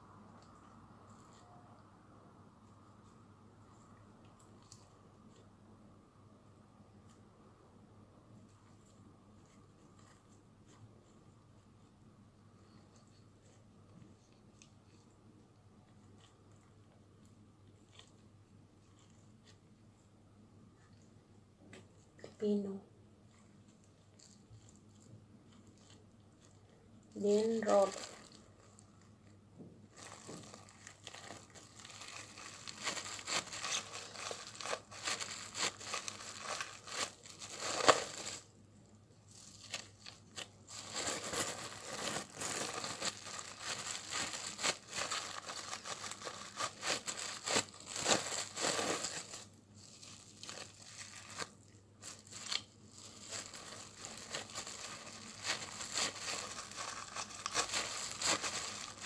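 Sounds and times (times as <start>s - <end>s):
cling film rustling and crackling: 29.9s - 38.5s, 39.3s - 59.0s.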